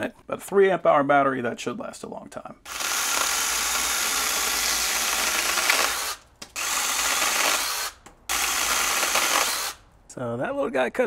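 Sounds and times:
mini chainsaw cutting branch: 0:02.7 - 0:09.8.

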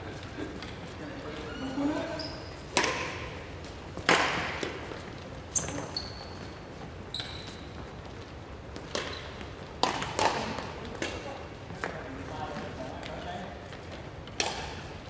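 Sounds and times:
shoes squeaking on wooden floor: 0:00.7 - 0:02.7, 0:04.8 - 0:08.2
rackets hitting shuttlecock: 0:02.6 - 0:05.0, 0:08.7 - 0:12.0, 0:14.3 - 0:14.9.

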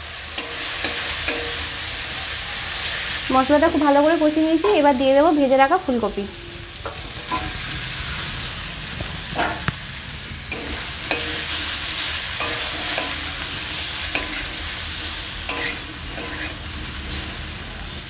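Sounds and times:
food sizzling in oil: 0:00.0 - 0:18.0
metal spatula scraping a pan: 0:00.3 - 0:02.1, 0:06.3 - 0:08.3, 0:09.2 - 0:09.7, 0:10.4 - 0:17.5.

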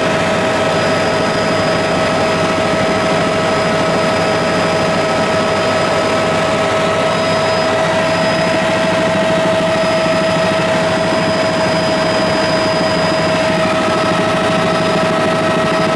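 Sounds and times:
constant engine whine: 0:00.0 - 0:15.9
light aircraft engine drone: 0:00.0 - 0:15.9.

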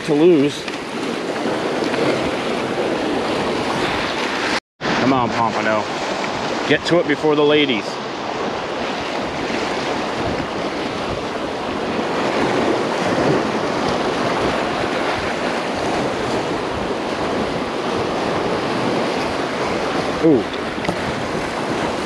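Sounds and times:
surf washing over rocks: 0:00.0 - 0:22.0
wind buffeting microphone: 0:07.9 - 0:22.0.

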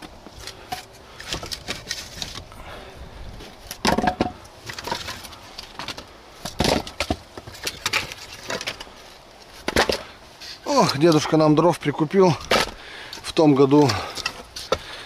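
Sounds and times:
firewood knocking together: 0:03.7 - 0:08.9, 0:09.6 - 0:10.1.

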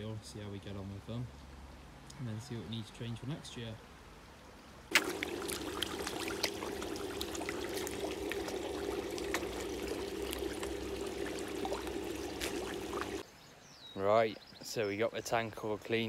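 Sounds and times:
fish splashing and slurping: 0:04.9 - 0:13.2
running water: 0:04.9 - 0:13.2.

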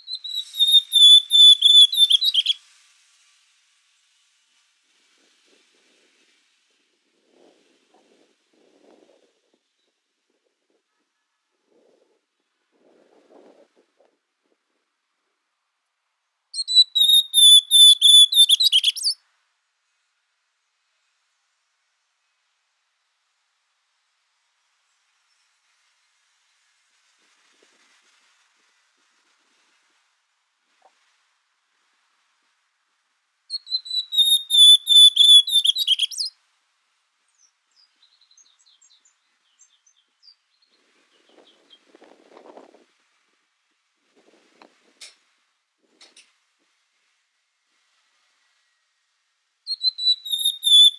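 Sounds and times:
bird singing whistled notes: 0:00.0 - 0:02.6, 0:16.5 - 0:19.2, 0:33.5 - 0:36.4, 0:37.3 - 0:41.8, 0:49.6 - 0:50.9.

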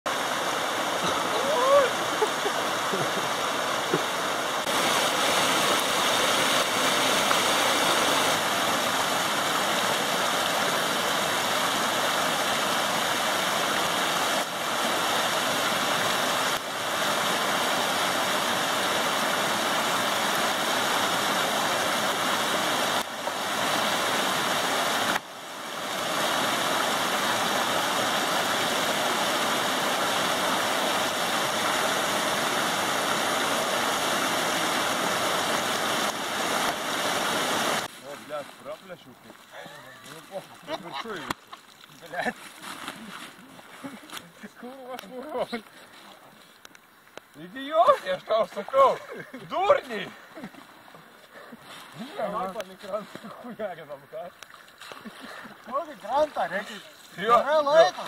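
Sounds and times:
water rushing over a dam: 0:00.1 - 0:38.4.

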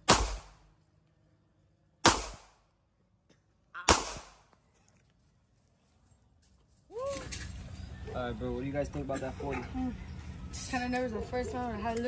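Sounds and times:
pistol shots: 0:00.0 - 0:00.7, 0:02.0 - 0:02.6, 0:03.8 - 0:04.5.

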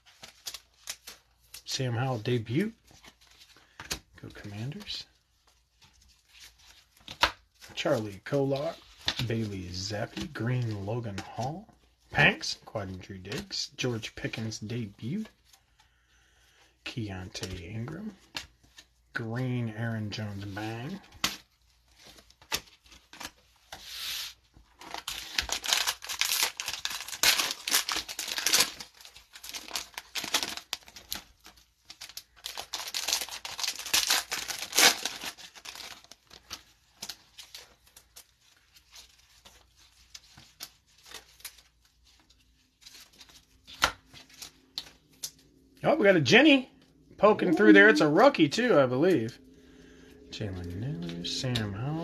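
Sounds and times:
cellophane wrapper crinkling and tearing: 0:00.0 - 0:11.6, 0:20.5 - 0:46.1.

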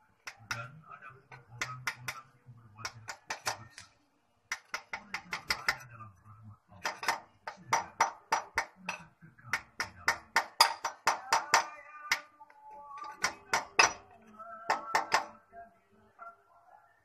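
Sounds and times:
hammer tapping metal on metal: 0:00.2 - 0:00.7, 0:01.3 - 0:02.2, 0:02.8 - 0:03.9, 0:04.5 - 0:05.9, 0:06.8 - 0:12.4, 0:13.0 - 0:15.4.

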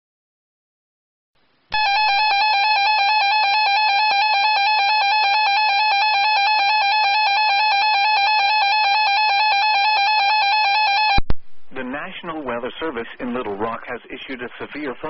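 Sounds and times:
loud steady alarm tone: 0:01.7 - 0:11.3.

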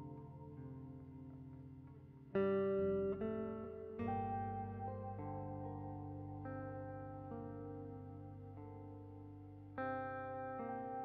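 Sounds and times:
plucked guitar music: 0:00.0 - 0:11.0.

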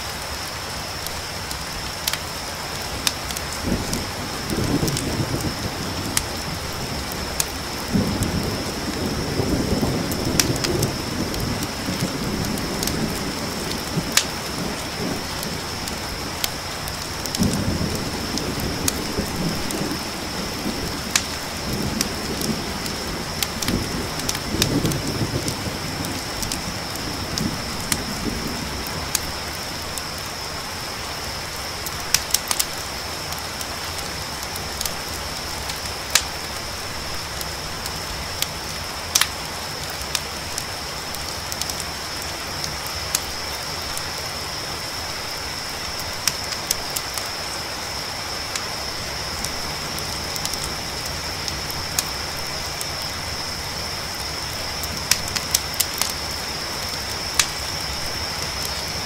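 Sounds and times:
crickets trilling: 0:00.0 - 0:59.0
rain hiss: 0:00.0 - 0:59.0
campfire pops and crackles: 0:00.1 - 0:30.5, 0:31.2 - 0:59.0
low thunder rumble: 0:02.9 - 0:30.2.

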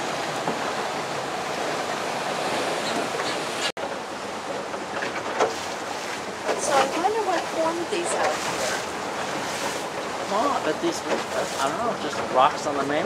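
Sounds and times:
waves rushing: 0:00.0 - 0:13.0.

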